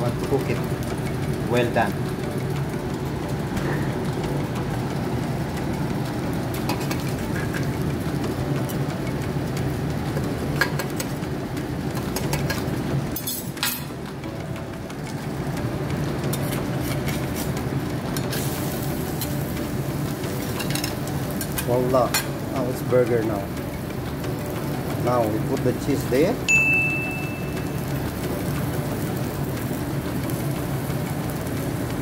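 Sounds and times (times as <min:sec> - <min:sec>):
egg frying on a griddle: 0:00.0 - 0:32.0
steady mechanical hum: 0:00.0 - 0:32.0
spatula clicking and scraping metal: 0:06.5 - 0:11.2, 0:11.9 - 0:13.9, 0:16.2 - 0:26.3.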